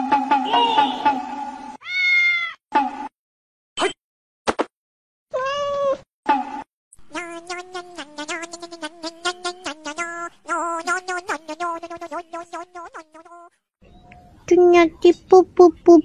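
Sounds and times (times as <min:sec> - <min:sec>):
cat meowing: 0:01.8 - 0:02.6, 0:05.3 - 0:06.0.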